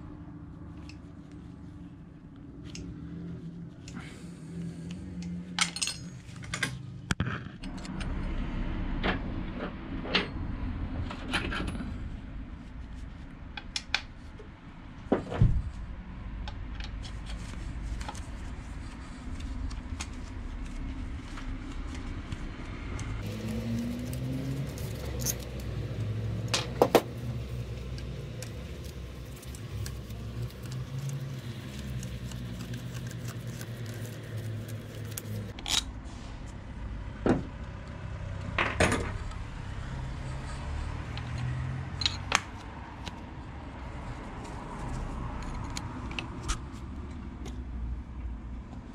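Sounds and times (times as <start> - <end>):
metal tools clinking: 5.6 - 6.8, 24.0 - 25.7.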